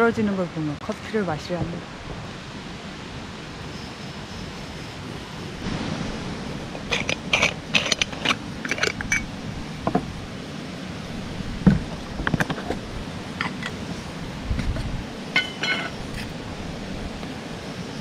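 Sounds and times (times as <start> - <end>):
stream rushing: 0.0 - 18.0
metallic clinks and taps: 6.8 - 9.3, 15.4 - 16.0.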